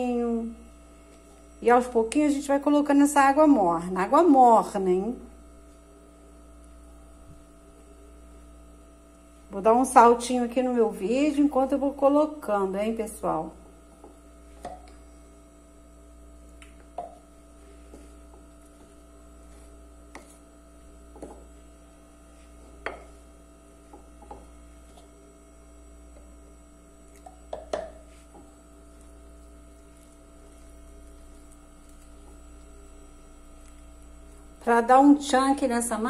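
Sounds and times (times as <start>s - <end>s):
electrical hum: 0.0s - 36.0s
wooden spoon stirring dough: 16.4s - 34.6s
spoon knocking ceramic bowl: 27.5s - 28.0s.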